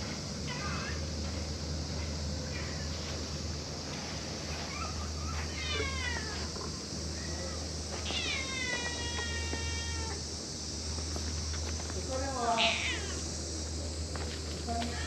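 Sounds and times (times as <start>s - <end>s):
cat meowing: 0.5s - 1.0s, 2.5s - 2.9s, 4.7s - 6.5s, 7.2s - 10.2s, 12.6s - 13.2s.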